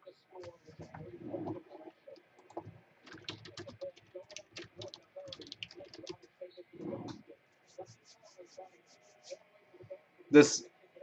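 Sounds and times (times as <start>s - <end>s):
keyboard typing clicks: 2.4s - 6.3s.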